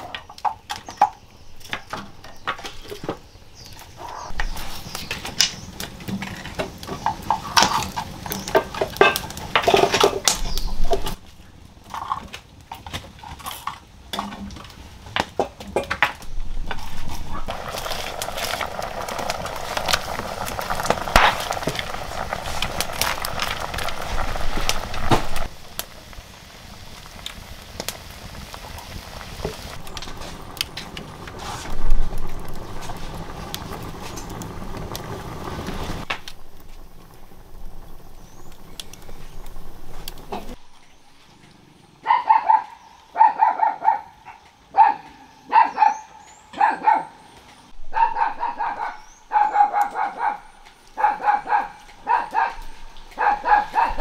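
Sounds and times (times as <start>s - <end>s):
wood fire crackling: 0.0s - 41.9s, 47.2s - 54.0s
cooking pot bubbling: 4.0s - 11.2s, 15.4s - 40.8s
dog yapping: 42.1s - 47.1s, 47.9s - 54.0s.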